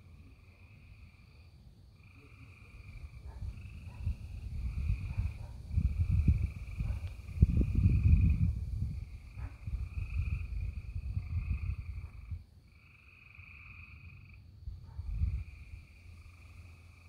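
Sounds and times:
frogs trilling: 0.1 - 17.0
low rumbling noise: 3.0 - 12.4.

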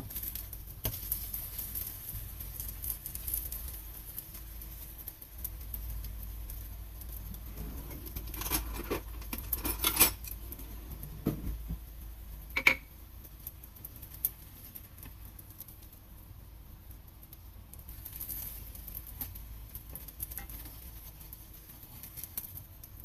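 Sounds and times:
pancakes sizzling in a pan: 0.0 - 7.5, 9.0 - 23.0
utensil clinking on crockery: 7.9 - 10.4.

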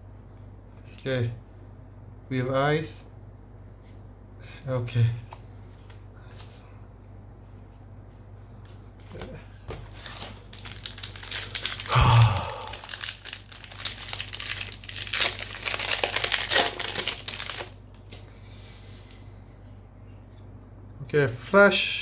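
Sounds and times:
foil wrapper crinkling and tearing: 9.9 - 18.2.

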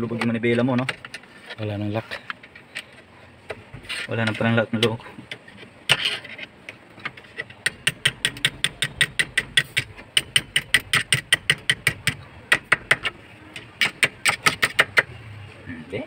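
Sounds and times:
rapid metal clicks: 4.8 - 15.1.

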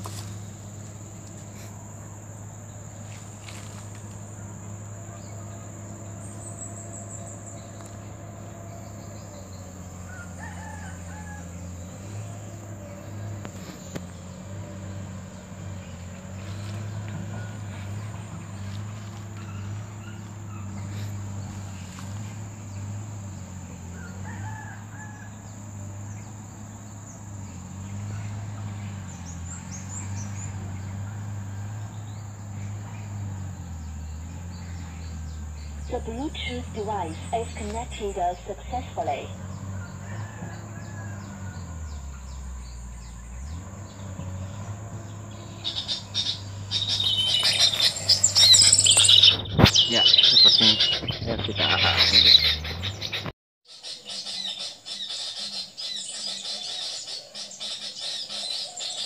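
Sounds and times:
insects droning: 0.0 - 53.0, 53.7 - 59.0
short bird chirps: 46.0 - 51.5.

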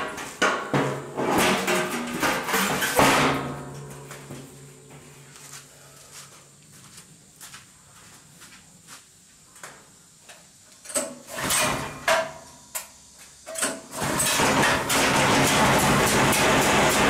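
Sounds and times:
threshing machine running: 13.9 - 17.0.

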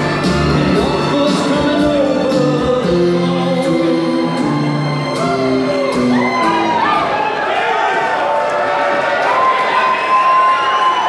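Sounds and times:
song with singing over a beat: 0.0 - 7.0.

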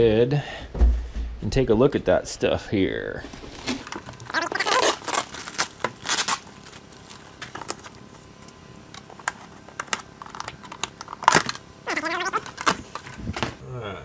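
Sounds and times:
plastic packaging crinkling: 3.8 - 13.3.

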